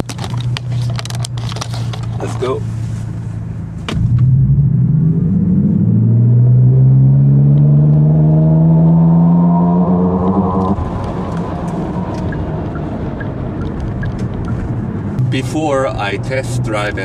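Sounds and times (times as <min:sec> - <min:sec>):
tyre and road noise: 0:00.0 - 0:17.0
synthetic engine sound rising: 0:04.0 - 0:14.3.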